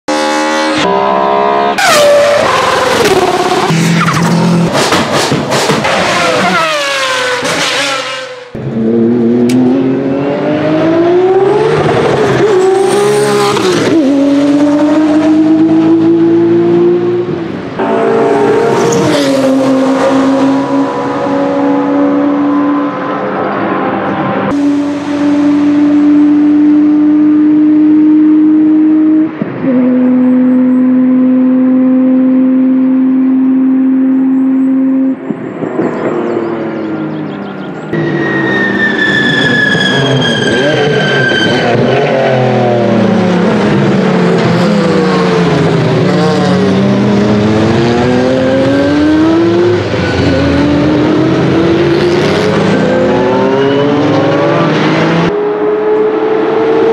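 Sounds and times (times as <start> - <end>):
racing car engine accelerating: 0.1 - 56.9.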